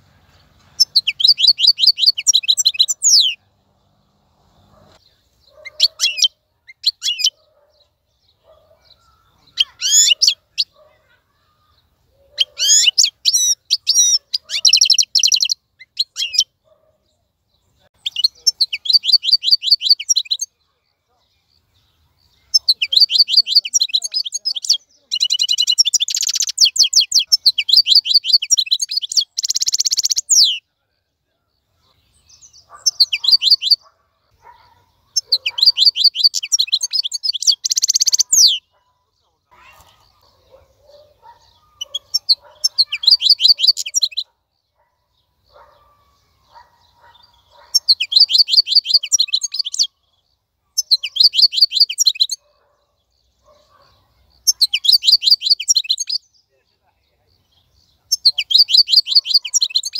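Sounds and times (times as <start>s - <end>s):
goldfinch twittering song: 0.0s - 3.4s, 17.5s - 30.6s, 32.0s - 56.8s, 57.4s - 59.9s.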